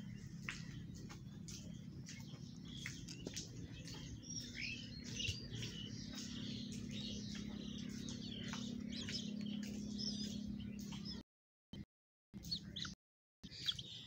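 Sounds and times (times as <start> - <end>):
bird chick begging chirps: 12.4 - 14.0.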